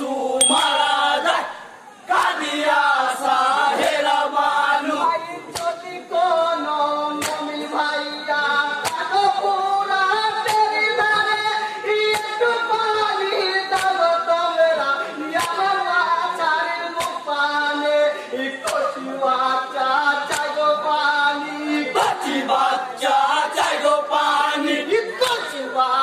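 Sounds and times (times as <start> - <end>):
group of voices singing: 0.0 - 26.0
sharp hand clap: 2.2 - 2.4, 5.5 - 5.8, 7.2 - 7.5, 8.8 - 9.1, 10.4 - 10.7, 13.7 - 14.0, 15.4 - 15.6, 17.0 - 17.2, 20.3 - 20.5.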